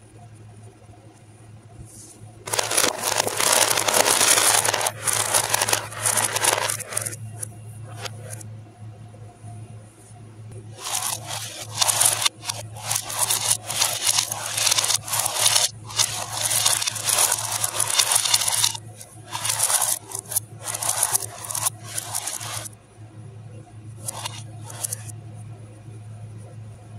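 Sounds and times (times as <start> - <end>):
steady low hum: 0.0 - 26.9
marbles rolling on metal tray: 2.5 - 8.4, 10.7 - 22.7, 24.0 - 25.1.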